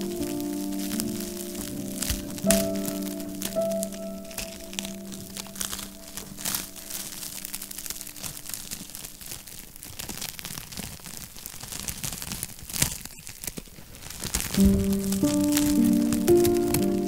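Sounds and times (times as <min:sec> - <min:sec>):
soft background music: 0:00.0 - 0:08.8, 0:14.6 - 0:17.0
fire crackling and popping: 0:00.0 - 0:17.0.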